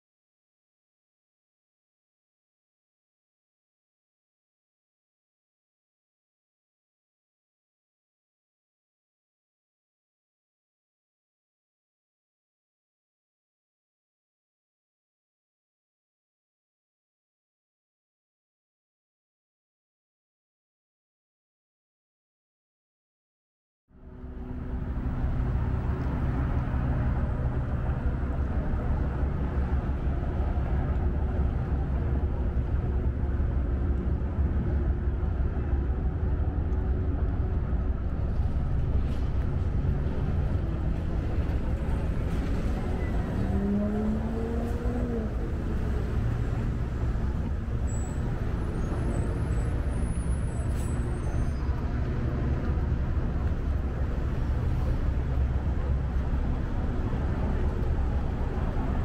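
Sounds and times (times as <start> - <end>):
low rumble of traffic: 23.9 - 59.0.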